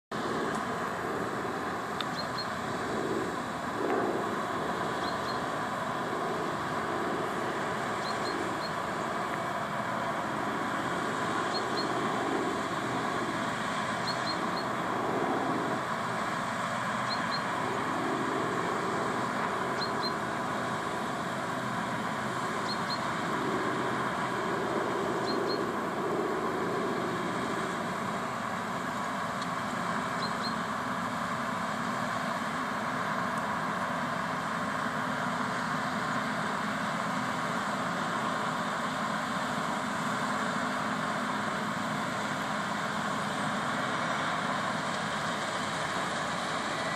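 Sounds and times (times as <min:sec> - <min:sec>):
combine harvester droning: 0:00.1 - 0:46.9
faint high double chirp: 0:30.2 - 0:30.6.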